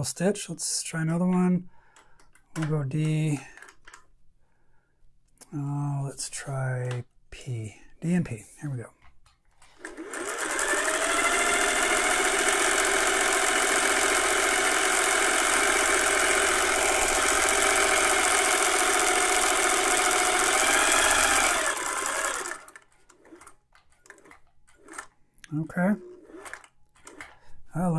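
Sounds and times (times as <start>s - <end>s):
sewing machine running: 9.6s - 25.2s, 25.8s - 27.5s.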